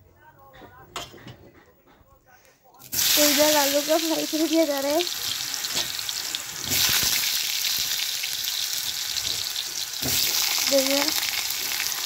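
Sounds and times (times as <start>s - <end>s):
potato wedges sizzling in hot oil: 2.8s - 12.0s.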